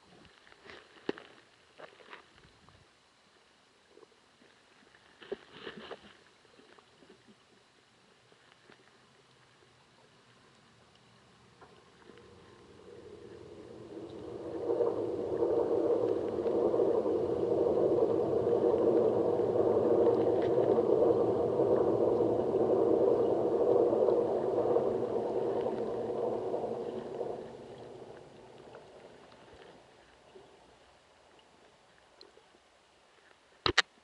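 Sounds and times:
motor humming underwater: 10.2s - 32.4s.

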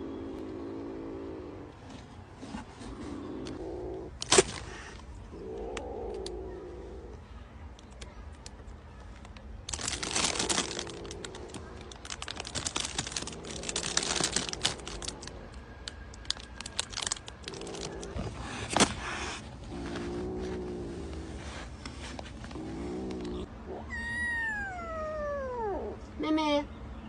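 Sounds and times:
plastic bag crinkling: 9.6s - 18.2s.

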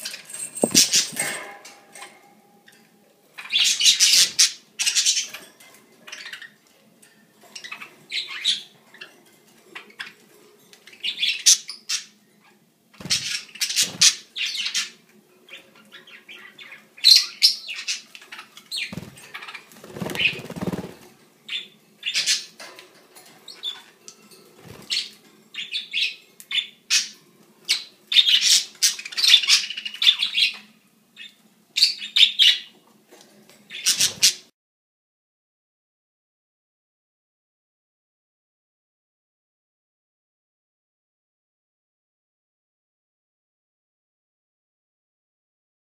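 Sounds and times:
wings flapping: 0.3s - 1.5s, 18.9s - 21.1s.

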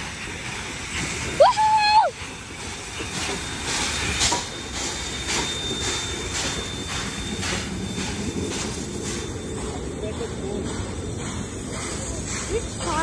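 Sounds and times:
steam locomotive chuffing past: 0.0s - 13.0s.

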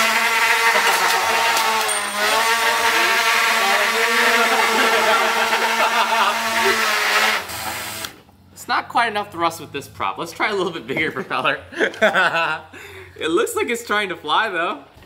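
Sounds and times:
rotary tool motor whining: 0.0s - 8.2s.

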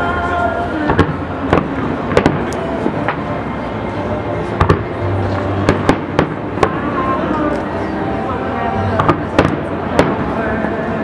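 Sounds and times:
steady background din: 0.0s - 11.0s
fireworks bursting with sharp bangs: 0.8s - 3.5s, 4.4s - 7.0s, 9.0s - 10.4s.

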